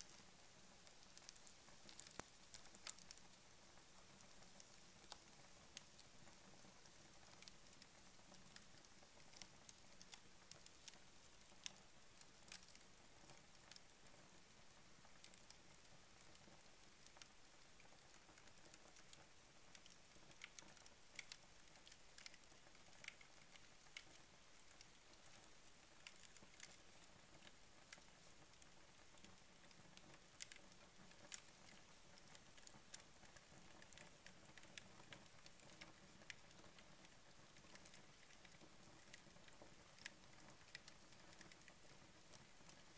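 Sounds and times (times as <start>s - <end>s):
paper fire crackling: 0.0s - 42.9s
soft hiss: 0.0s - 42.9s.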